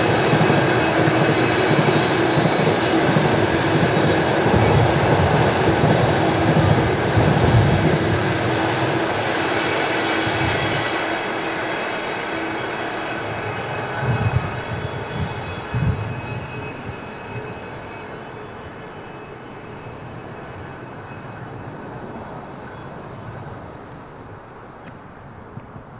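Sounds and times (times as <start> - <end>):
freight train rolling on rails: 0.0 - 25.9
heavy thumps from train wheels: 0.1 - 8.3.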